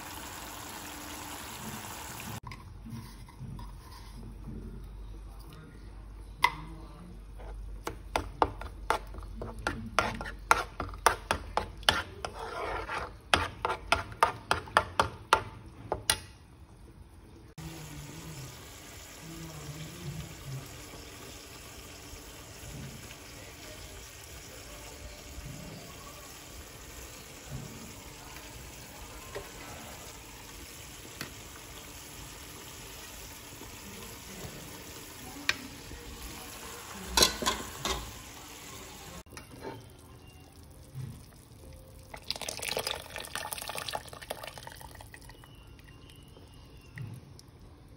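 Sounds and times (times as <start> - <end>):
broth simmering hiss: 0.0 - 2.4, 17.5 - 39.3
metal spoon scraping metal pan: 9.9 - 14.6.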